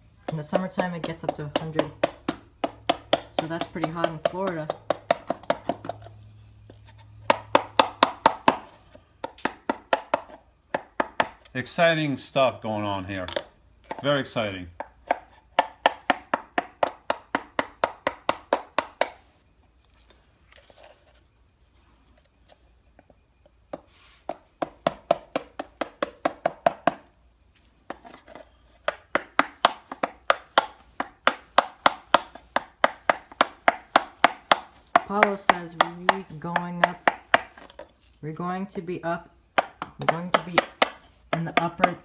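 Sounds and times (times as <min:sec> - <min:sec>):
hammer tapping chisel into wood: 0:00.2 - 0:06.1, 0:07.2 - 0:11.5, 0:14.8 - 0:19.2, 0:23.7 - 0:27.1, 0:28.8 - 0:37.8, 0:39.6 - 0:42.0.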